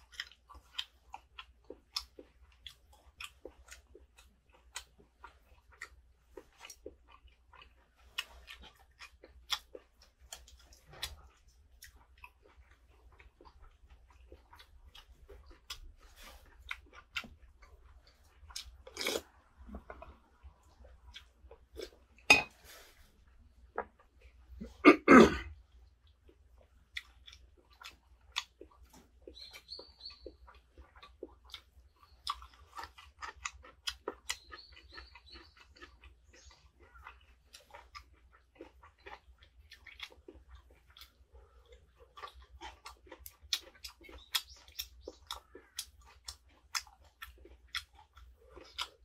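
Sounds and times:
chewing: 0:00.0 - 0:24.8, 0:25.4 - 0:49.0.

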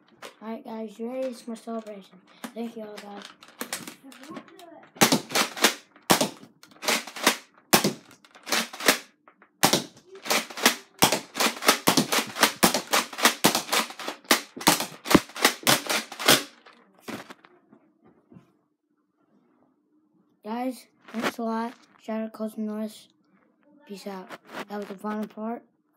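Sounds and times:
foam dart blaster firing: 0:05.0 - 0:16.6.

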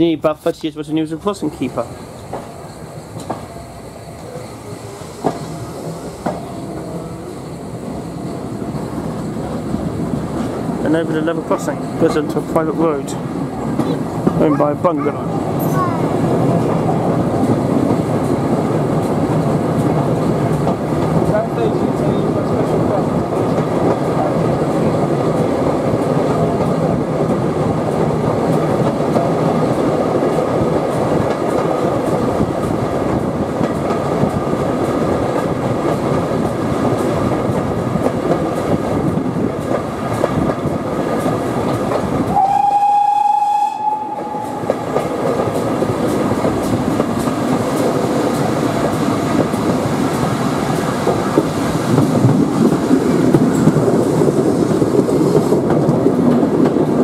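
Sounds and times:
train carriage rolling and rattling: 0:00.0 - 0:57.0
wheels clicking over rail joints: 0:08.7 - 0:42.6, 0:44.2 - 0:57.0
steam locomotive whistle: 0:42.3 - 0:45.0.

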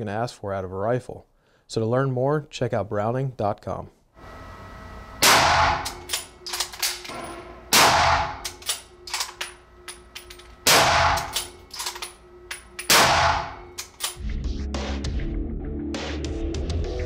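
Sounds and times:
rifle shots: 0:05.2 - 0:08.6, 0:10.6 - 0:11.6, 0:12.9 - 0:13.8.

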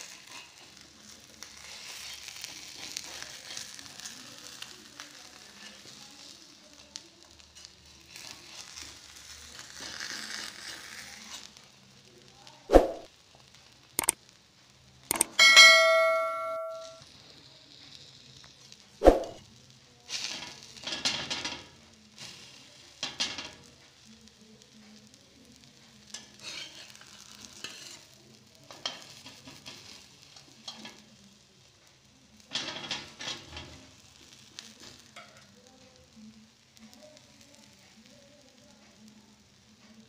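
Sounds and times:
metal spatula scraping griddle pan: 0:00.0 - 0:06.0, 0:07.6 - 0:11.5, 0:26.1 - 0:31.0, 0:32.4 - 0:35.4
frying sizzle: 0:00.0 - 0:16.1, 0:16.8 - 0:40.0.

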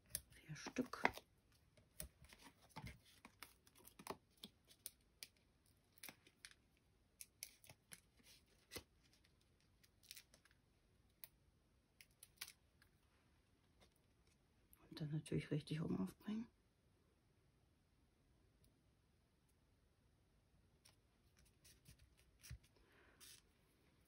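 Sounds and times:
card and plastic sheet clicks and rustles: 0:00.0 - 0:06.6.

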